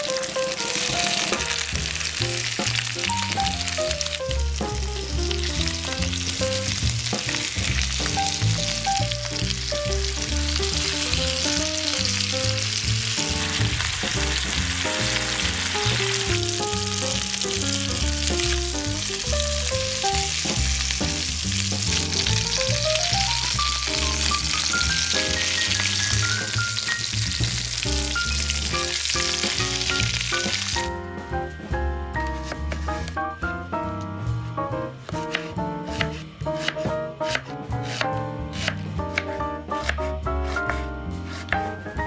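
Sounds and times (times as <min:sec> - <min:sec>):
chicken sizzling in oil: 0:00.0 - 0:31.0
background music: 0:00.0 - 0:42.0.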